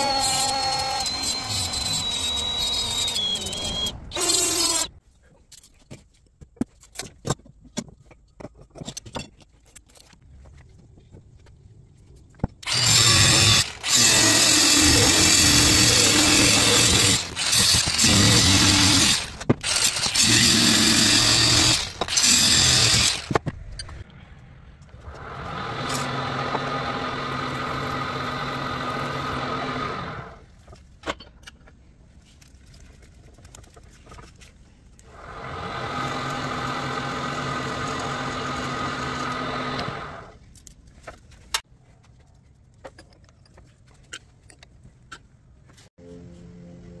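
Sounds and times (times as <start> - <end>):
angle grinder cutting steel: 0.0 - 4.9, 12.6 - 23.4, 25.0 - 30.4, 35.1 - 40.3
milling machine spindle humming: 0.0 - 4.9, 12.7 - 23.3.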